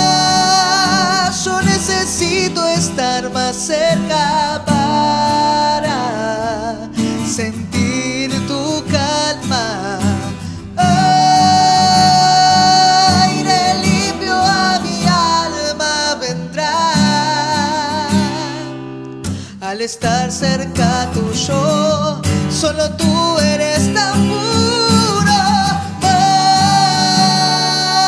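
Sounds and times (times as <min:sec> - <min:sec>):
strummed acoustic guitar: 0:00.0 - 0:28.0
woman singing lead: 0:08.7 - 0:18.7
men singing harmony: 0:09.7 - 0:18.4, 0:23.7 - 0:28.0.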